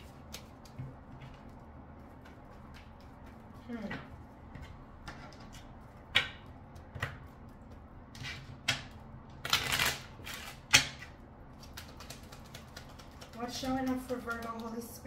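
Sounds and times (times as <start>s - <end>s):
cards being shuffled: 0.0s - 3.4s, 9.4s - 10.6s, 11.6s - 14.8s.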